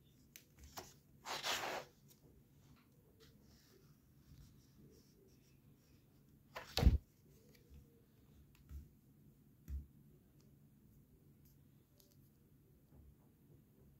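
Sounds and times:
book closing thud: 6.6s - 7.0s.

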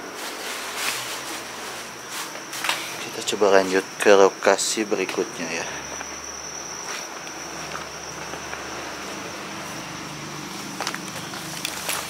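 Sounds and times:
footsteps through tall grass: 0.0s - 3.0s, 10.4s - 12.0s
crickets chirring: 0.0s - 12.0s.

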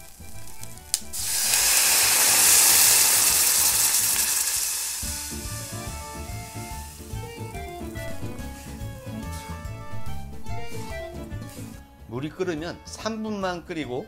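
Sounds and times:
water hissing in hot pan: 0.0s - 9.4s
background music: 0.0s - 14.0s.

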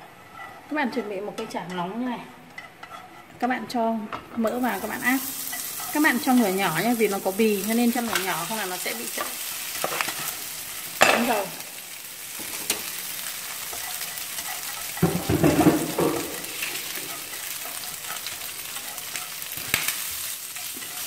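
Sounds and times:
pork fat sizzling in a pan: 4.4s - 21.0s.

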